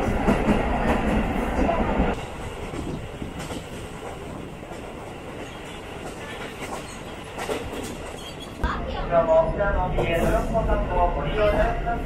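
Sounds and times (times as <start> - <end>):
train wheels on rails: 0.0 - 8.8.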